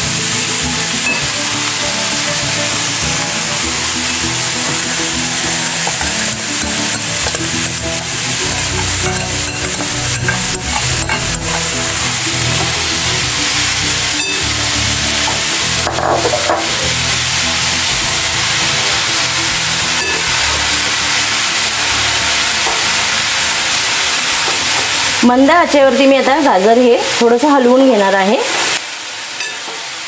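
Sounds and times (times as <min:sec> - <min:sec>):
carrots sizzling in fat: 0:00.0 - 0:30.0.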